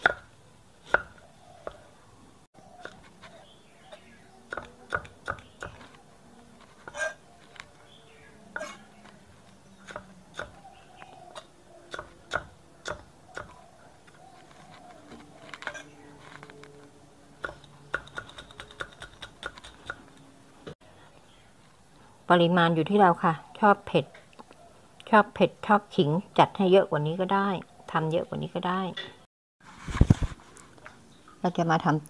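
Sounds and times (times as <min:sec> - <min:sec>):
knife chopping on wooden block: 0:00.0 - 0:01.8, 0:04.5 - 0:06.0, 0:09.8 - 0:10.6, 0:11.3 - 0:13.6.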